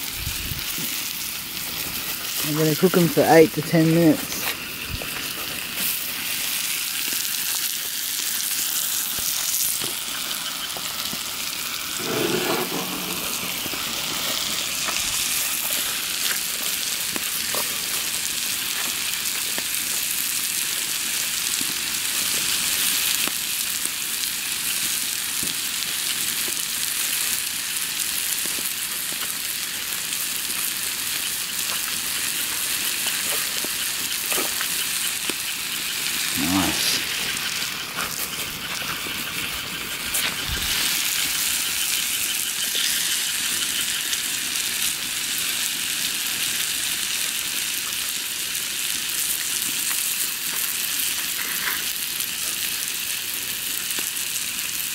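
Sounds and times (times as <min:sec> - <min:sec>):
water boiling and bubbling: 0:00.0 - 0:54.9.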